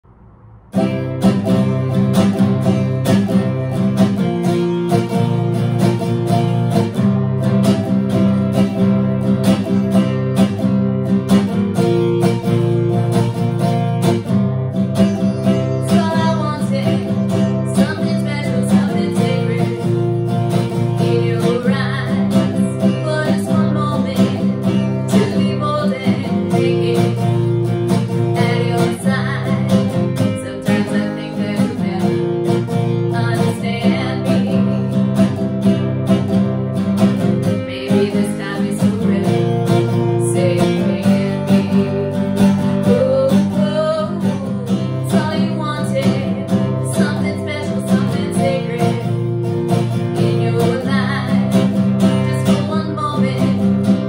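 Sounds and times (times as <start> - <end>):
acoustic guitar strumming: 0.0 - 54.0
woman singing: 15.3 - 54.0.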